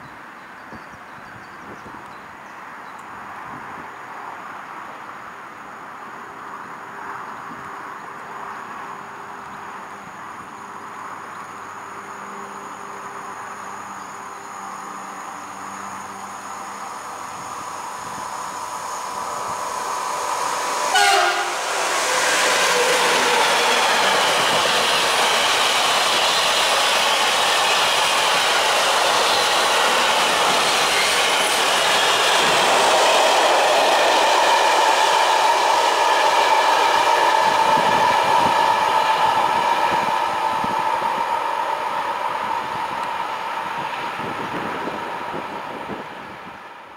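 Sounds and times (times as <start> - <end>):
train wagons rumbling and clattering: 17.0 - 46.6
train horn blast: 20.9 - 21.8.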